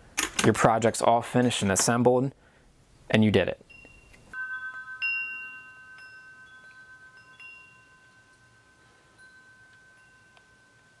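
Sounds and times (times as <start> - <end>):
metal wind chime ringing: 3.7 - 11.0.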